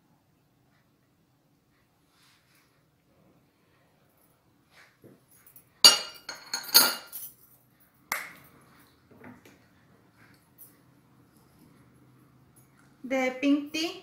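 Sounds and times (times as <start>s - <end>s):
metal spoon clinking on glass: 5.8s - 7.4s.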